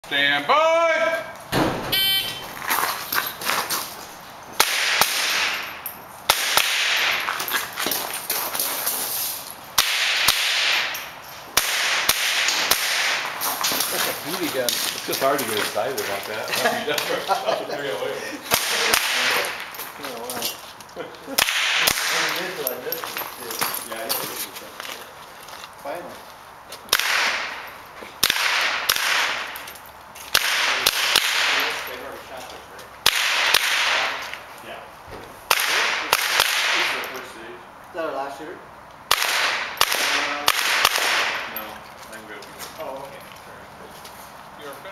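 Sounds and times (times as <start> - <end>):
rifle shots with echo: 4.6 - 5.7, 6.3 - 7.2, 9.8 - 11.0, 11.6 - 13.3, 26.9 - 27.6, 28.2 - 29.6, 30.3 - 31.8, 33.0 - 34.2, 35.5 - 37.0, 39.1 - 41.5.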